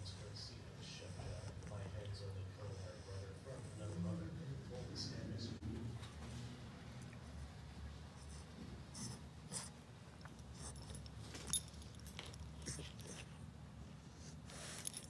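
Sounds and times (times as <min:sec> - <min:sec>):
puppy rustling and scratching: 0:07.5 - 0:13.4
collar tag clink: 0:10.6 - 0:13.2, 0:14.5 - 0:15.0.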